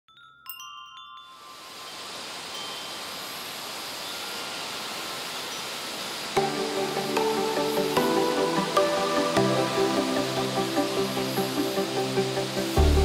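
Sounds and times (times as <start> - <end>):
wind chime tones: 0.1 - 9.1
steady rushing noise: 1.6 - 13.0.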